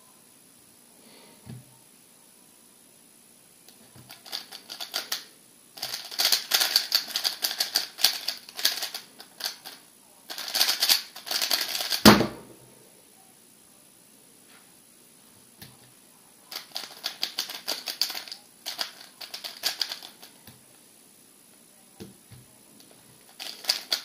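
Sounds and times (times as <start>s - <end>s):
plastic puzzle cube clicking: 5.8s - 12.0s, 16.6s - 20.2s
cube thump on mat: 12.0s - 12.6s.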